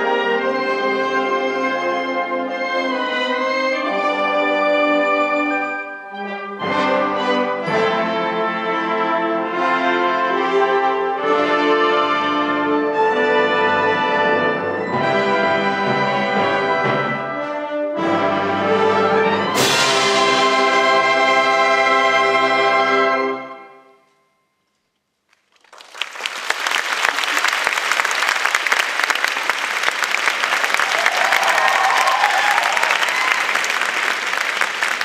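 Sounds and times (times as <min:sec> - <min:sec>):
wind band playing: 0:00.0 - 0:24.0
percussion crash: 0:19.5 - 0:21.3
audience applause: 0:25.4 - 0:35.0.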